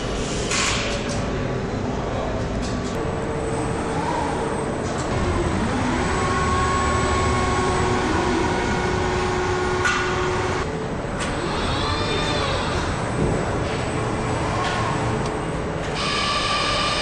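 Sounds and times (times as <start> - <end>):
machinery humming and whining: 1.4 - 17.0
servo whine: 3.8 - 10.7.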